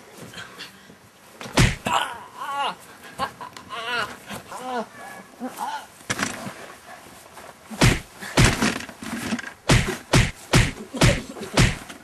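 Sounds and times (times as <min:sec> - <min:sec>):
heavy punch thuds: 0:01.5 - 0:01.9, 0:07.8 - 0:08.7, 0:09.7 - 0:11.9.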